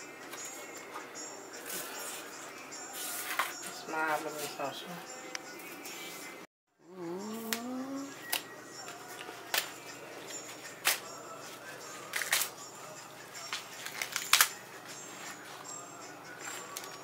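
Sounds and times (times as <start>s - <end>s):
short voice sound: 6.9s - 8.2s.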